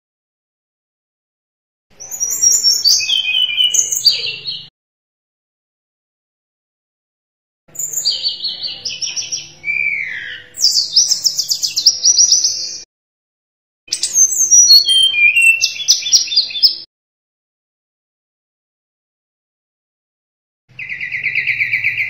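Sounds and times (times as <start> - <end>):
flycatcher singing trilled phrases: 2.0 - 4.7, 13.9 - 16.9.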